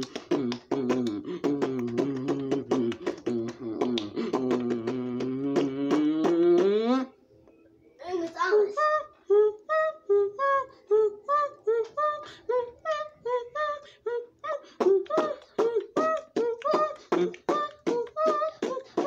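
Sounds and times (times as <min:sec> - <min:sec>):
beatboxing: 0:00.0 - 0:07.1, 0:14.6 - 0:19.0.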